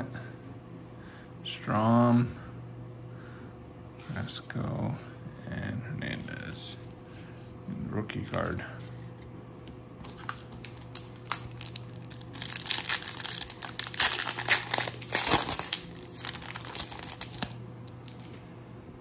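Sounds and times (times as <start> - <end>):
foil wrapper crinkling: 10.0 - 18.4.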